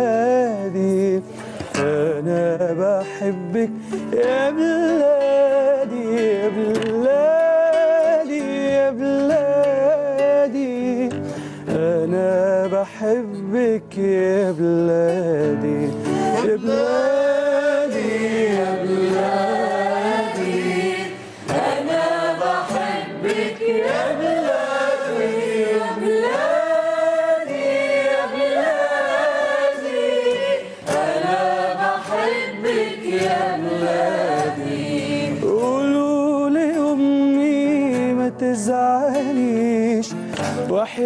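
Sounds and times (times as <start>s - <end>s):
acoustic guitar: 0.0s - 41.0s
voices singing in chorus: 15.9s - 37.1s.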